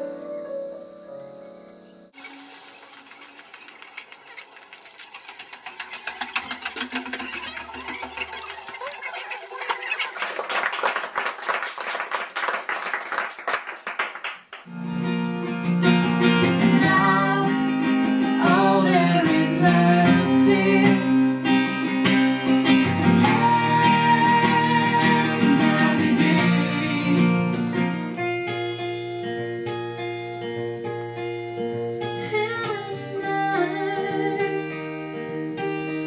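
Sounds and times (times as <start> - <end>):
person singing: 0.0 - 1.4, 16.4 - 21.4, 23.2 - 27.6
audience clapping: 2.8 - 14.7
acoustic guitar playing: 14.7 - 36.0.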